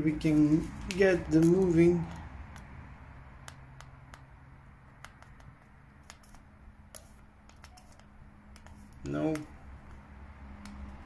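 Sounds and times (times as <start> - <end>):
faint clicks and handling noise: 0.2 - 2.7.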